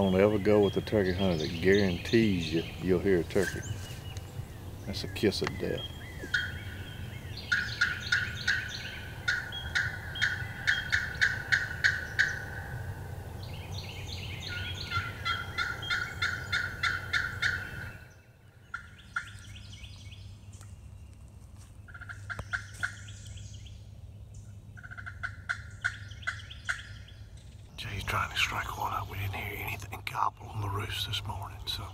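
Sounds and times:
turkey call notes: 4.9 - 12.9, 14.4 - 18.1, 21.9 - 23.1, 24.8 - 27.0.

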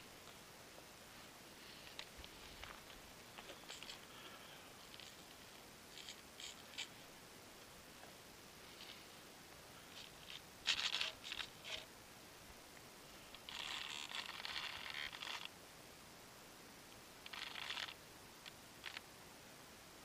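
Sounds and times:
scraping and rustling on foam: 9.8 - 11.9, 13.4 - 15.5.

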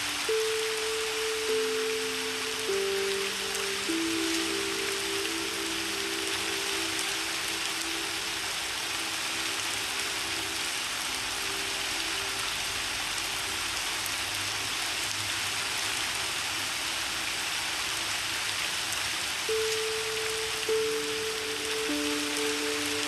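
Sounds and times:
soft piano notes: 0.0 - 12.8, 19.5 - 23.0
steady rain hiss: 0.0 - 23.0.

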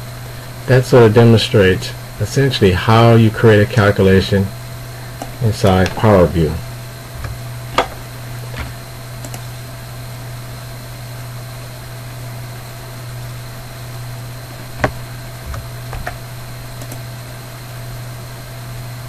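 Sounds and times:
low hum and hiss: 0.0 - 19.0.

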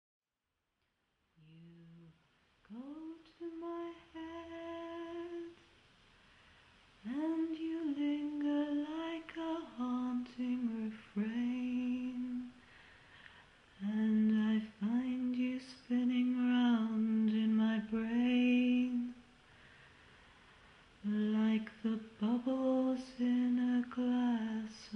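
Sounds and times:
woman humming: 1.4 - 5.6.

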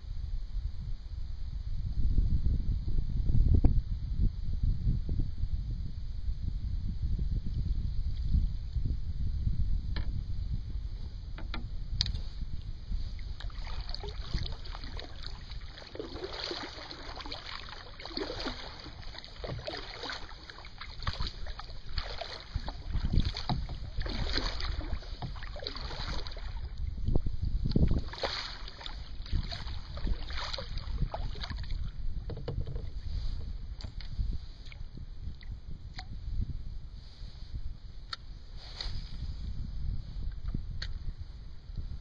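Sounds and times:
wind rumbling on microphone: 0.0 - 42.0
kayak paddle splashing in water: 11.4 - 36.2.

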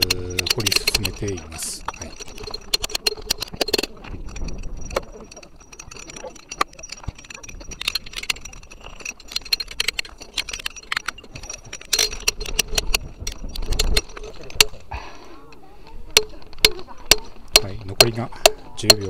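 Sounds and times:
hammer striking chisels on rock: 16.2 - 19.0.

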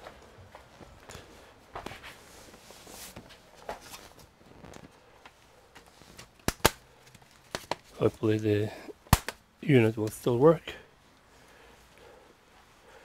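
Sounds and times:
laptop cover rustling: 1.8 - 8.1.

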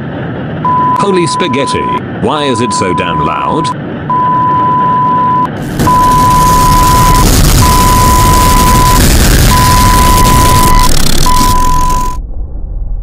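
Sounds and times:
high electronic beep tone: 0.7 - 2.0, 2.6 - 12.2
harsh static noise: 5.5 - 12.2.

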